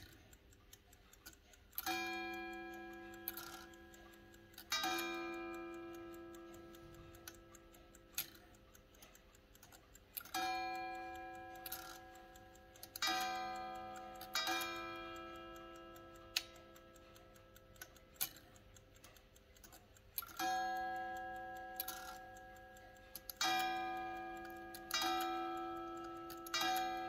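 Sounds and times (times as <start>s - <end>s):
fast clock ticking: 0.0s - 27.0s
sharp clicks: 0.0s - 27.0s
clock striking ringing notes: 1.8s - 7.7s, 10.3s - 17.2s, 20.4s - 27.0s.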